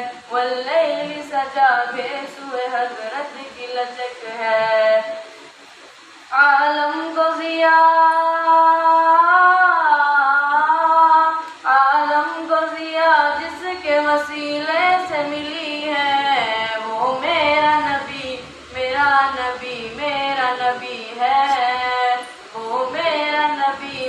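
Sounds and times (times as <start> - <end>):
person chanting into a microphone: 6.4 - 24.0.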